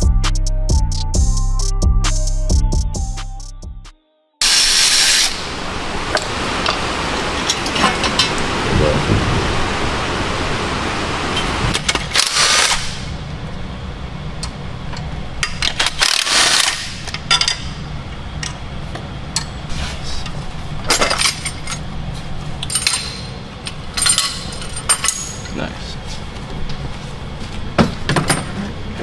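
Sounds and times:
rain: 0:04.6 - 0:12.8
low steady hum: 0:05.4 - 0:29.0
metal tools clanking: 0:07.3 - 0:08.4, 0:20.8 - 0:21.9, 0:22.6 - 0:25.7.

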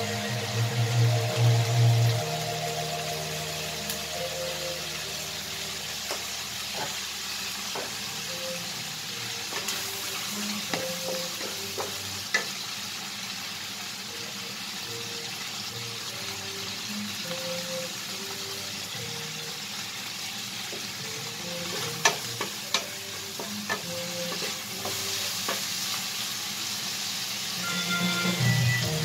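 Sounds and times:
meat and onion sizzling in a pan: 0:00.0 - 0:29.0
wooden spatula knocking on pan: 0:07.8 - 0:08.0.

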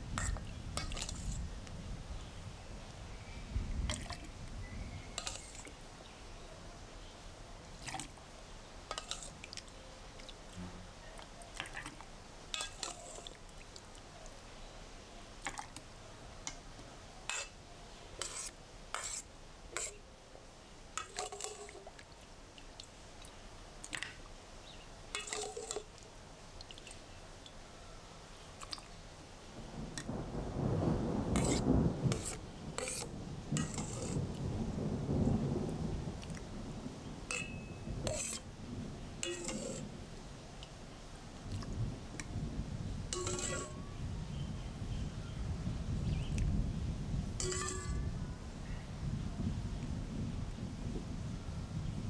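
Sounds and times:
light clinks on glass jar: 0:37.3 - 0:38.4, 0:43.2 - 0:43.8, 0:47.4 - 0:48.0.

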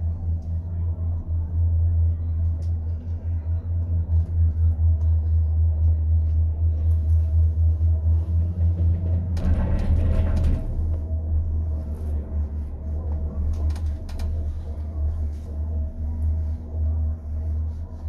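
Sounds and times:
cable car cabin rumble and hum: 0:00.0 - 0:18.0.

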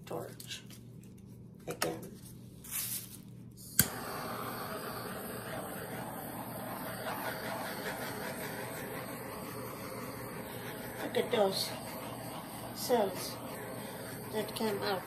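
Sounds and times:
butane torch clicking alight: 0:03.6 - 0:15.0
torch flame hissing: 0:03.6 - 0:15.0.

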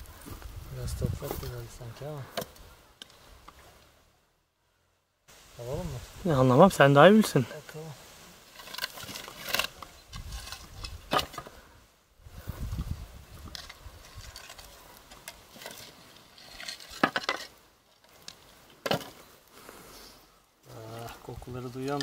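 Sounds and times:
soil scraping: 0:00.0 - 0:04.0, 0:05.6 - 0:22.0
roof tiles clinking and clacking: 0:13.6 - 0:17.6.

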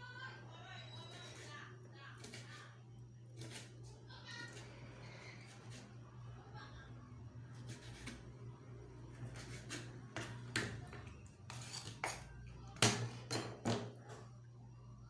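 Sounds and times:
knife blade scraping board: 0:07.6 - 0:08.2, 0:09.2 - 0:10.3, 0:11.5 - 0:12.3.

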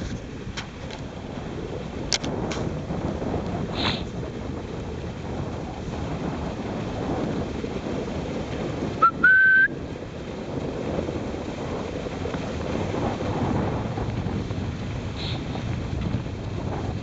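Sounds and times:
sled gliding over snow: 0:00.0 - 0:17.0
wind on microphone: 0:00.0 - 0:17.0
loud whistle: 0:09.0 - 0:09.7.

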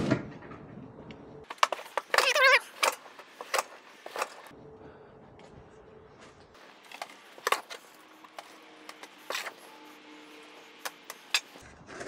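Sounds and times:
shovel scraping and knocking: 0:01.5 - 0:04.5, 0:06.6 - 0:12.0.

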